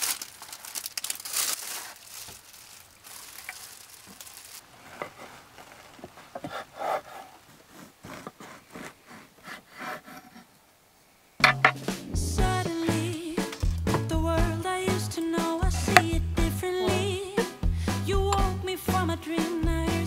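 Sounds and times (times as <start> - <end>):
plastic bag rustling: 0.0 - 9.1
knife sawing through bread crust: 6.4 - 10.5.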